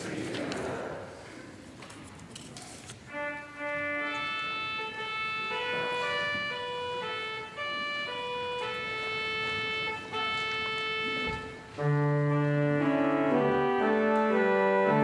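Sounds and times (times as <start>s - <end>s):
church organ playing: 3.1s - 15.0s.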